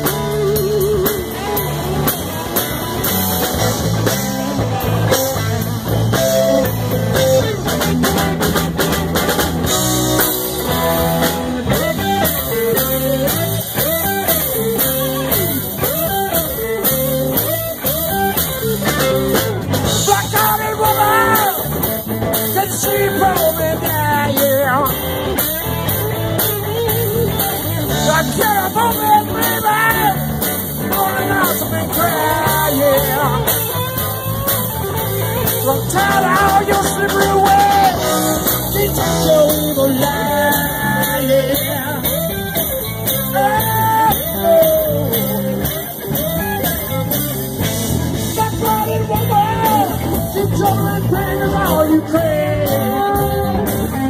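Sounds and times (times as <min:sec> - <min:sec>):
man singing: 0:00.0 - 0:02.2, 0:11.2 - 0:17.9, 0:19.8 - 0:25.4, 0:27.8 - 0:45.8, 0:48.1 - 0:54.0
live rock band playing: 0:00.0 - 0:54.0.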